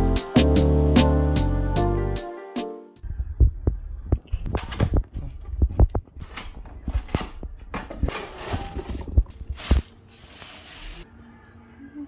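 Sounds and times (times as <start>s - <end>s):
plastic wrap crinkly rustle: 5.8s - 11.0s.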